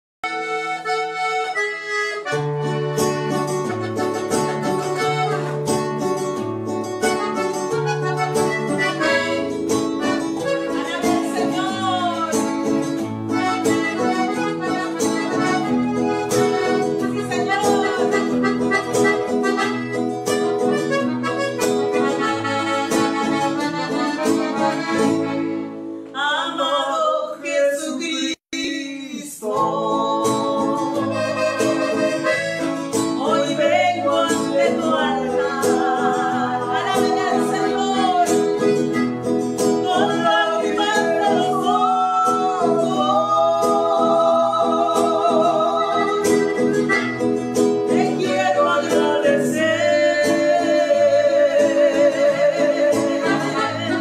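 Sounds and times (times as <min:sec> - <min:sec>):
piano accordion melody: 0:00.2 - 0:26.1, 0:29.5 - 0:54.0
strummed acoustic guitar: 0:00.2 - 0:26.1, 0:29.5 - 0:54.0
woman singing: 0:10.1 - 0:12.7, 0:16.2 - 0:18.9, 0:26.2 - 0:32.3, 0:33.1 - 0:38.9, 0:39.7 - 0:46.8, 0:47.8 - 0:54.0.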